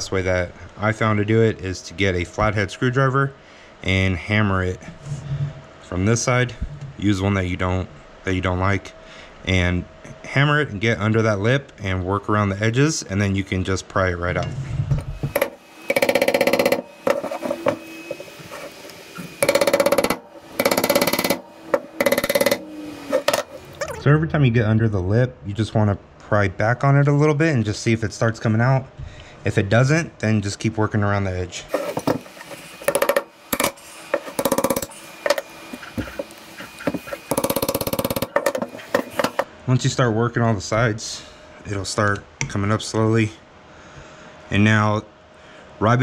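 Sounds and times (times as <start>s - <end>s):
metal scraping: 14.4s - 23.9s, 31.7s - 39.5s
metal-on-metal tapping: 15.3s - 17.8s, 19.4s - 22.6s.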